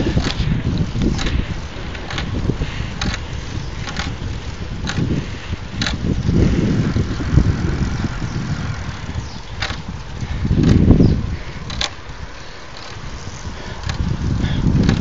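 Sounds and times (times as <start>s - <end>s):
wind buffeting microphone: 0.0s - 15.0s
light ticks: 11.6s - 12.0s, 13.8s - 14.1s.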